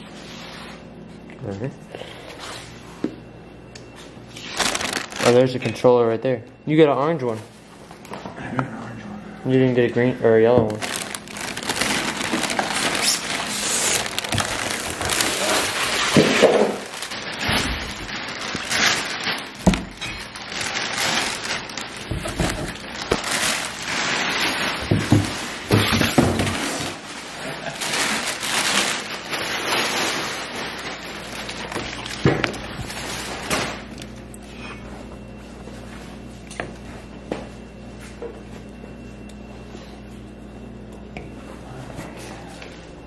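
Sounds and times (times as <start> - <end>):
plastic wrapping crinkling: 4.3 - 5.9, 10.6 - 34.2
styrofoam and cardboard handled: 10.6 - 33.8.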